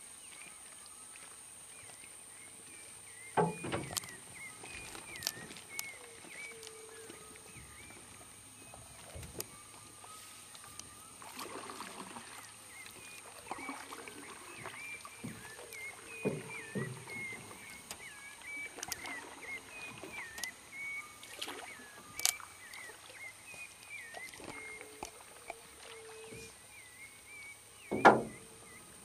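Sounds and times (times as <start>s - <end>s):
sharp knocks: 27.9s - 28.4s.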